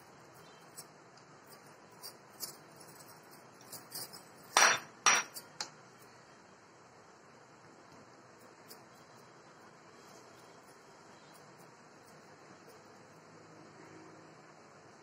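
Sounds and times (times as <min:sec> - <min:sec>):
crockery clinking on glass table: 0:03.8 - 0:05.7.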